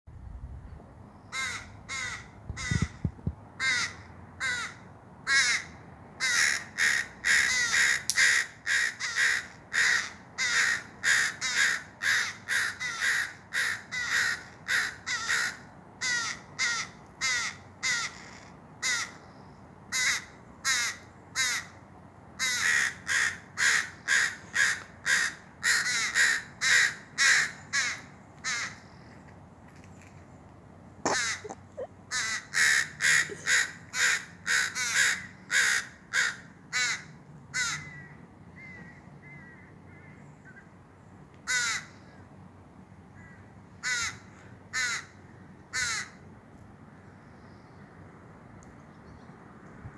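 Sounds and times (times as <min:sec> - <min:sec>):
crows cawing: 0:01.3 - 0:03.0, 0:03.6 - 0:19.2, 0:19.9 - 0:21.8, 0:22.4 - 0:29.1, 0:31.1 - 0:40.2, 0:41.4 - 0:42.1, 0:43.2 - 0:46.2.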